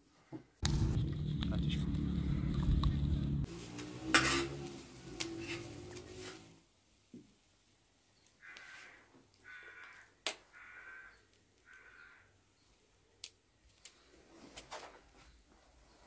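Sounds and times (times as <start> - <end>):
crow cawing: 8.4 - 12.4.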